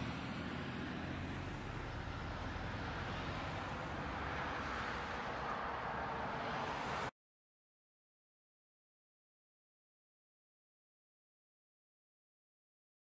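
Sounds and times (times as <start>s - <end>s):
road noise: 0.0s - 7.2s.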